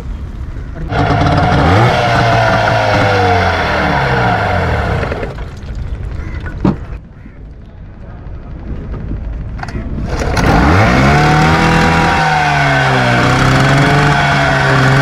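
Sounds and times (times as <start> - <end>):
small engine revving: 0.8 - 5.5, 10.0 - 15.0.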